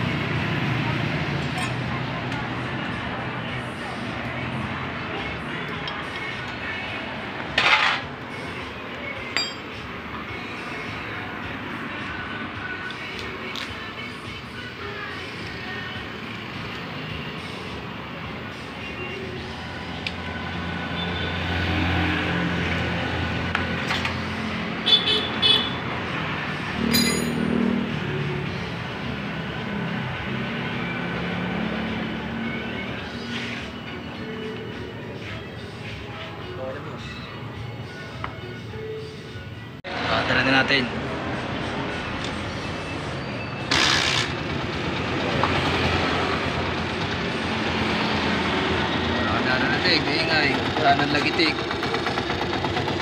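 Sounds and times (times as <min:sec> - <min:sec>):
motorcycle engine idling: 0:50.0 - 0:53.0.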